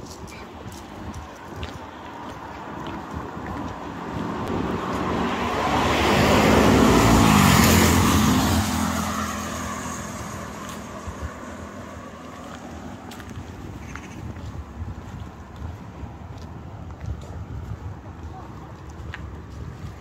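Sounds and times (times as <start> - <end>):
vehicle driving past: 4.0 - 13.1.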